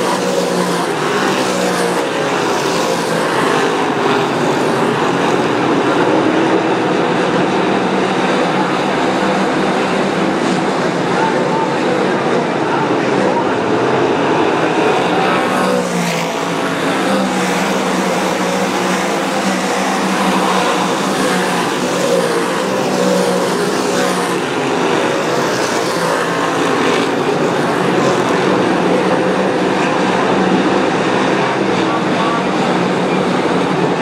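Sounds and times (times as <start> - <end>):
race car engines roaring: 0.0 - 34.0.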